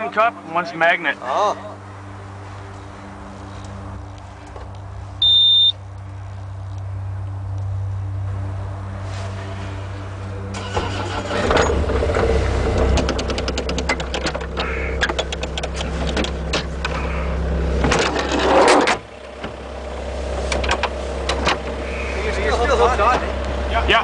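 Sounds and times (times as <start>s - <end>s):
diesel engine idling: 1.7s - 24.0s
sharp clicks and rattles: 10.9s - 17.1s, 20.4s - 21.8s.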